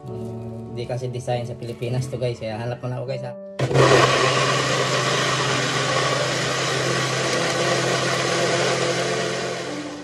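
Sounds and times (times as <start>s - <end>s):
blender motor running: 3.6s - 10.0s.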